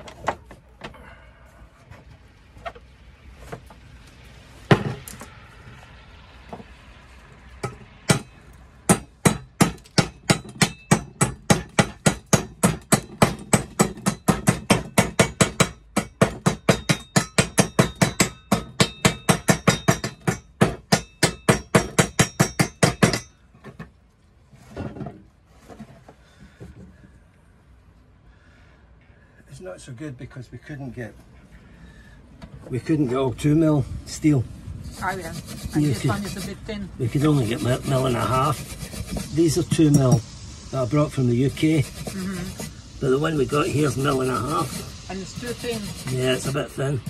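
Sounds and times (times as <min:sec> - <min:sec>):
hammer tapping metal: 0:07.6 - 0:23.3.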